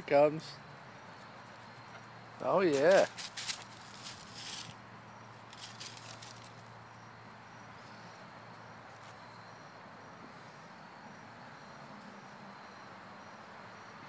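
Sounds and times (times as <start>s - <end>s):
faint insect chirping: 0.1s - 14.0s
footsteps in grass and leaves: 2.4s - 4.8s, 5.4s - 6.7s.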